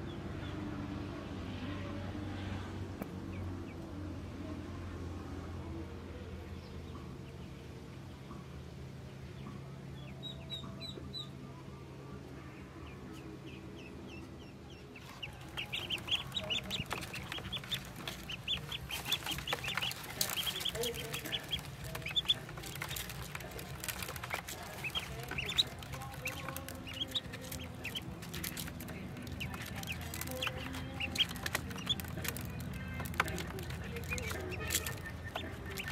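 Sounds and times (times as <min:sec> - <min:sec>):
ducklings peeping: 0:09.2 - 0:11.4, 0:12.6 - 0:35.9
bills pecking at feed dish: 0:14.7 - 0:35.9
feet on plastic crate: 0:15.0 - 0:35.9.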